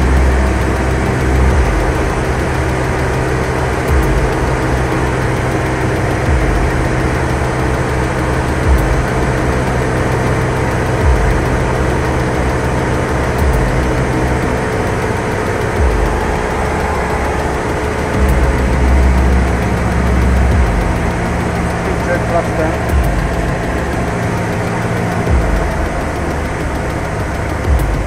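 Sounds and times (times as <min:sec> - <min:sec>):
light aircraft engine drone: 0:00.0 - 0:28.0
low thuds: 0:13.2 - 0:28.0.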